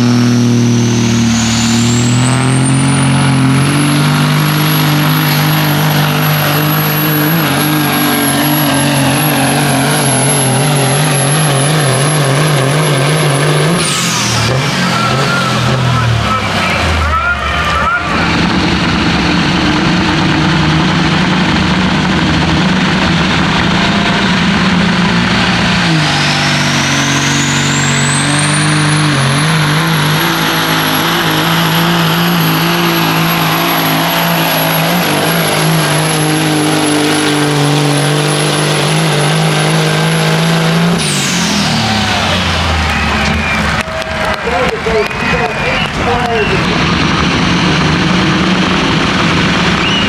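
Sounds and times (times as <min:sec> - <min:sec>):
turbocharger whistle: 0:00.0 - 0:18.5, 0:25.8 - 0:47.9, 0:49.4 - 0:50.0
diesel truck engine under load: 0:00.0 - 0:50.0.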